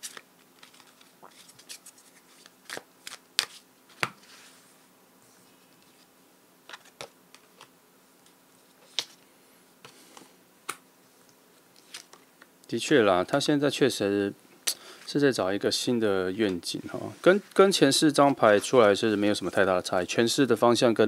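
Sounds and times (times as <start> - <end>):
soft card handling: 0.0 - 4.6, 5.2 - 12.3
cards snapping and slapping: 2.4 - 4.2.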